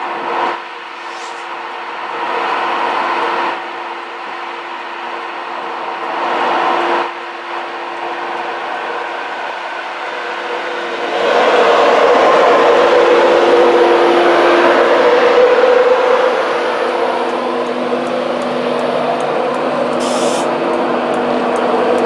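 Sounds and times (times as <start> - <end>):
locomotive humming tones: 0.0 - 22.0
train wheels rushing on rail: 0.0 - 22.0
short hiss: 1.0 - 1.4, 20.0 - 20.5.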